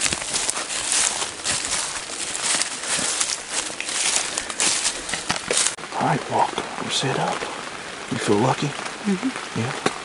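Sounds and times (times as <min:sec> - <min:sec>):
footsteps crunching through leaves: 0:00.0 - 0:05.8.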